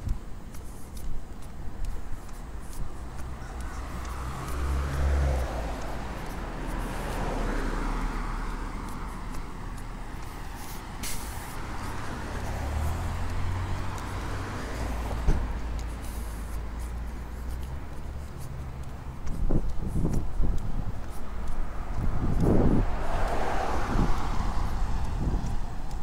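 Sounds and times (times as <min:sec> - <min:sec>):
vehicle engine passing: 0:03.1 - 0:26.0
short hiss: 0:10.7 - 0:11.5.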